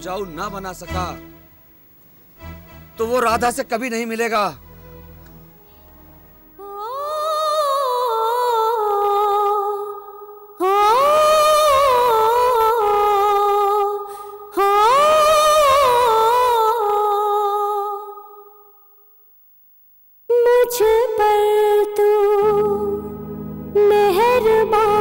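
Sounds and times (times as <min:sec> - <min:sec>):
high wordless singing voice: 0:06.6 - 0:18.8, 0:20.3 - 0:25.0.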